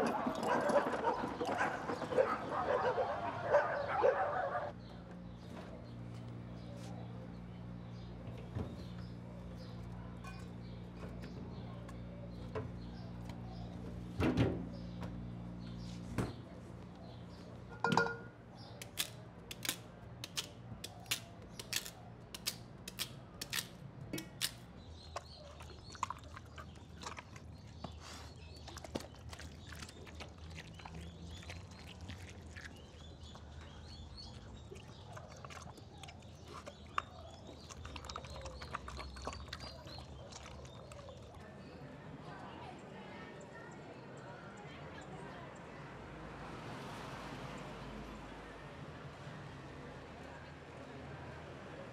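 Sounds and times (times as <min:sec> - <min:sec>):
metal pot clanking: 0:17.7 - 0:18.3.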